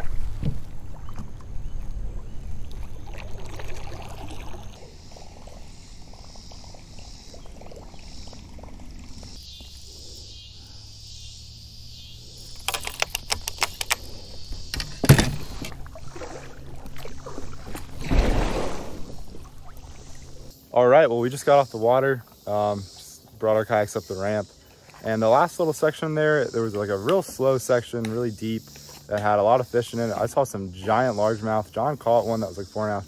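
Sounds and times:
paddle splashing water: 0:00.0 - 0:05.6, 0:14.9 - 0:20.5
quick clicks: 0:12.5 - 0:14.1
loud thump: 0:18.0 - 0:19.1.

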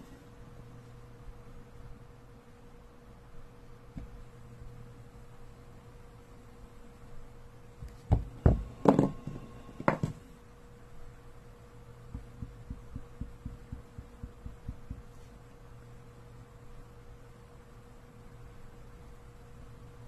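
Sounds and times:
faint steady hum: 0:00.0 - 0:20.0
marker tapping on a board: 0:12.1 - 0:15.1
sharp knocks and clicks: 0:12.1 - 0:15.1.

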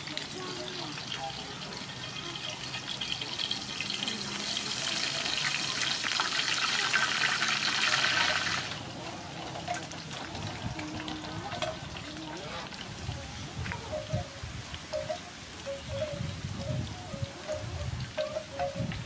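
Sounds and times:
deep-frying sizzle in oil: 0:00.0 - 0:13.9.

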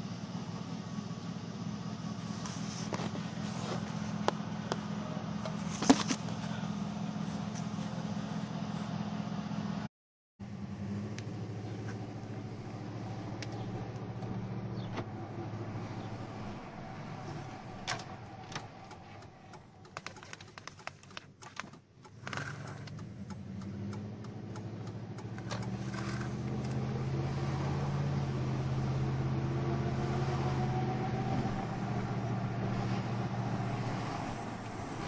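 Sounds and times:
truck engine hum: 0:00.0 - 0:35.0
clicks and rattles: 0:17.8 - 0:26.7.

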